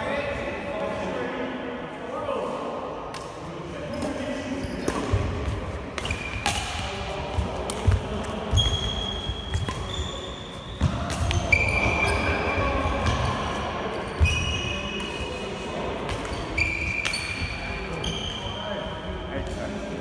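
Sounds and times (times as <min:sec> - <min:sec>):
shoes squeaking on court floor: 0:03.9 - 0:06.8, 0:07.4 - 0:15.3, 0:16.1 - 0:19.6
rackets smacking shuttlecock: 0:04.8 - 0:09.9, 0:10.8 - 0:11.6, 0:16.0 - 0:17.4.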